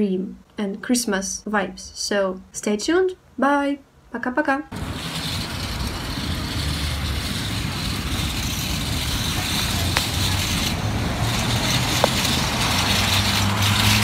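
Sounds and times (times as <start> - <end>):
low engine hum: 4.7 - 14.0
street traffic noise: 4.7 - 14.0
car driving past: 4.8 - 14.0.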